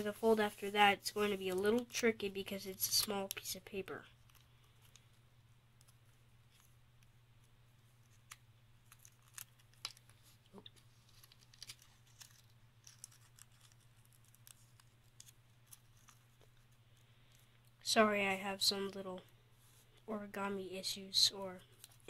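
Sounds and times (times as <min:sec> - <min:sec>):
paper being creased and folded: 0:05.8 - 0:17.0.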